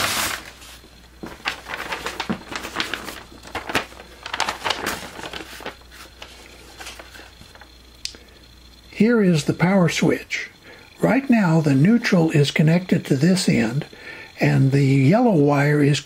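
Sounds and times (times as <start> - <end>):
paper rustling and crinkling: 0.0 - 7.7.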